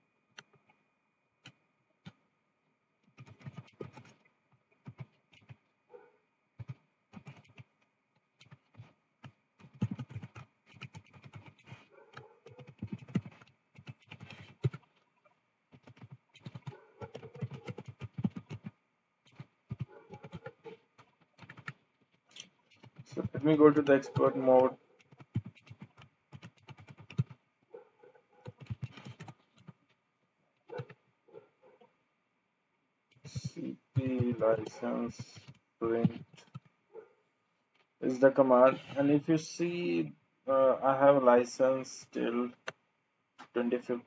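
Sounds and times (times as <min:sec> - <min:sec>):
computer keyboard typing: 0:03.1 - 0:04.2, 0:04.8 - 0:05.6, 0:06.6 - 0:07.7, 0:08.4 - 0:14.9, 0:15.7 - 0:27.4, 0:28.4 - 0:29.8, 0:33.2 - 0:36.7.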